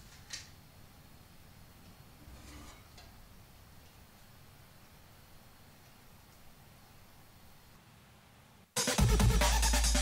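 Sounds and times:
electronic music with heavy bass: 8.8 - 10.0.

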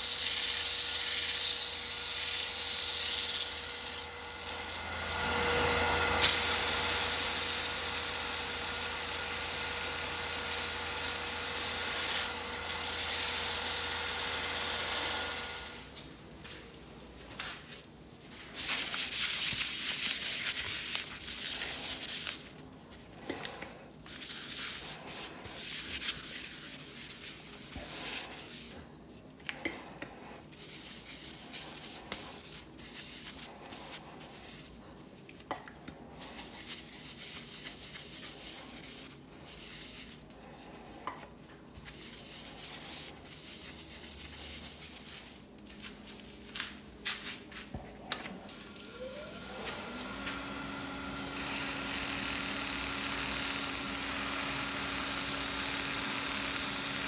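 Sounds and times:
wood lathe whine: 0.6 - 15.9, 48.2 - 57.0
paper towel wiping wooden bowl: 18.2 - 22.6, 24.1 - 28.9, 30.5 - 34.8, 36.2 - 40.8, 41.8 - 45.5.

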